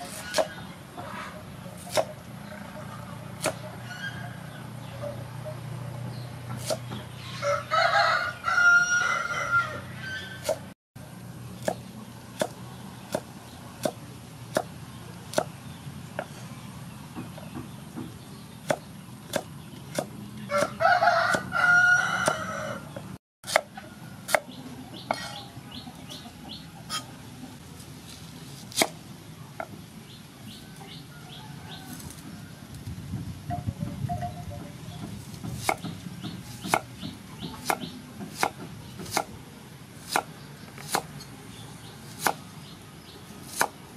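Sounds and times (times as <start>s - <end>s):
cleaver chopping on wooden board: 0.0s - 0.6s, 1.8s - 2.2s, 3.4s - 3.7s, 6.6s - 7.1s, 11.6s - 11.8s, 12.4s - 15.6s, 17.2s - 21.5s, 23.0s - 24.5s, 28.7s - 29.0s, 35.0s - 39.4s, 40.0s - 41.1s, 42.1s - 42.4s, 43.4s - 43.8s
rooster crowing: 7.2s - 10.4s, 20.5s - 22.9s, 30.6s - 32.6s.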